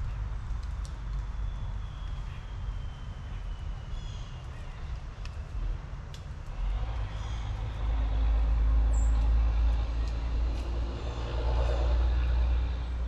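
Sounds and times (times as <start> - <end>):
motor vehicle passing: 6.5 - 13.0.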